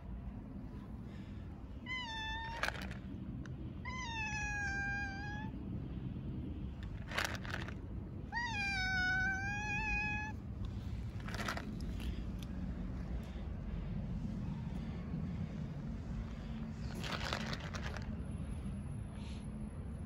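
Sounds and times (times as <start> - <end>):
cat meowing loudly: 1.8 - 3.0, 3.8 - 5.5, 8.3 - 10.4.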